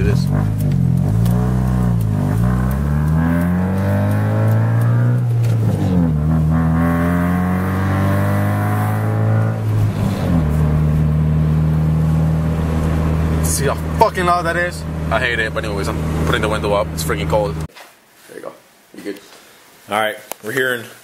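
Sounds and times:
car engine accelerating: 0.0 - 17.7
loud exhaust drone: 6.0 - 17.7.

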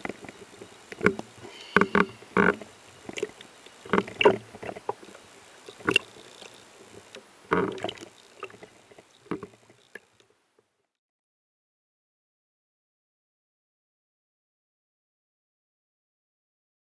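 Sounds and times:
faint water wash: 0.0 - 10.2.

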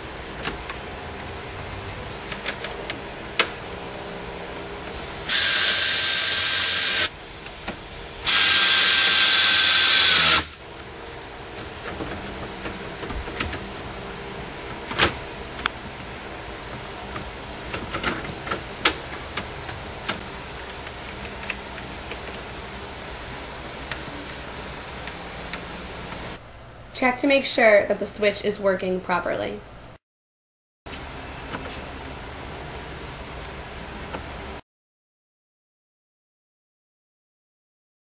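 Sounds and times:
power tool hissing whine: 4.9 - 10.6.

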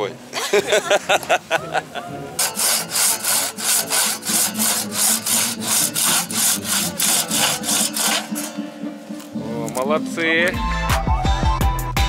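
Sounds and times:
crosscut saw rasping through log: 2.4 - 8.6.

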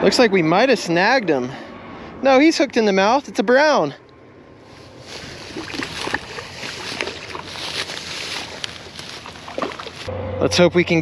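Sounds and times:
dry grass rustling: 4.4 - 10.1.

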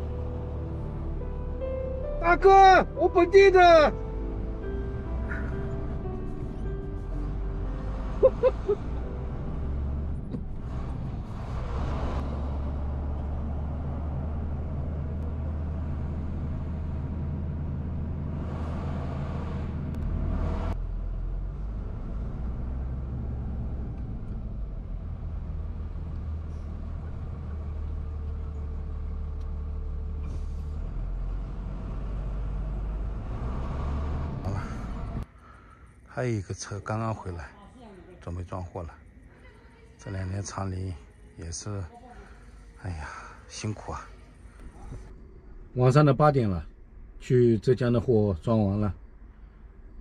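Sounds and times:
truck engine rumbling: 0.0 - 37.0.

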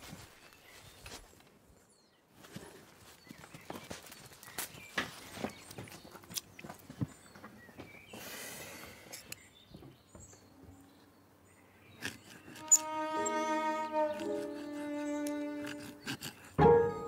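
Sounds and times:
string music: 12.0 - 17.0.

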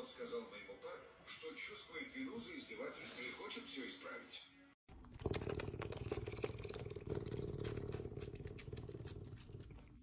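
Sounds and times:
cat sucking bottle wet clicks: 5.2 - 10.0.

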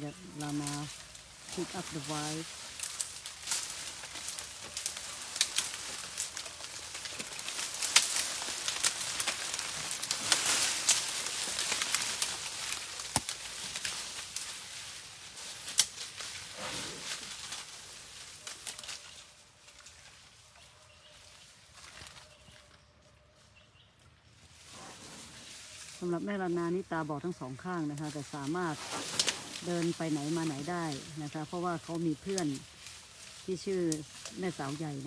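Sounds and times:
leaves rustling: 0.0 - 35.0
twigs and vines snapping: 0.3 - 14.8, 15.5 - 16.4, 29.0 - 30.0.

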